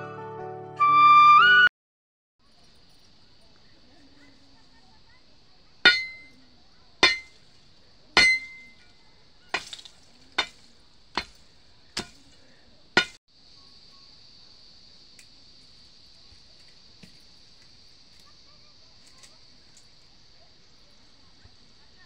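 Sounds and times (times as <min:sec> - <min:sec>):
steady high hiss: 0:02.4 - 0:22.0
metal bar striking stony soil: 0:05.8 - 0:13.2.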